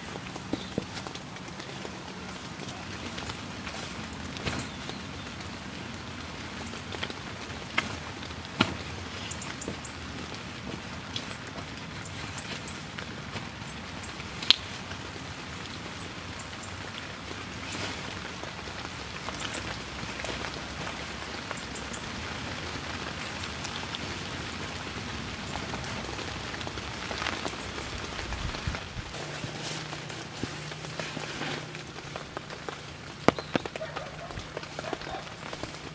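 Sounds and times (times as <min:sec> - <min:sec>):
rain falling: 0:00.0 - 0:35.9.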